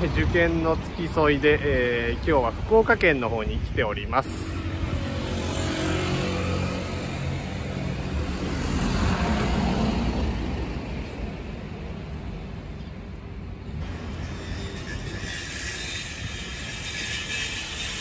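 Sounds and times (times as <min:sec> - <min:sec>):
road hum: 0:00.0 - 0:18.0
vehicle driving past: 0:04.7 - 0:10.6.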